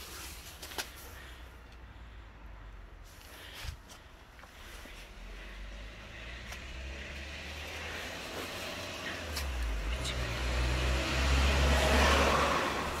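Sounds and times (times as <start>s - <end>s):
car passing: 4.6s - 13.0s.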